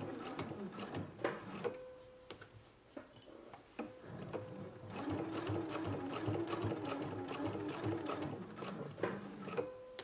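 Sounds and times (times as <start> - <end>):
sewing machine stitching: 0.0 - 1.8, 4.1 - 9.8.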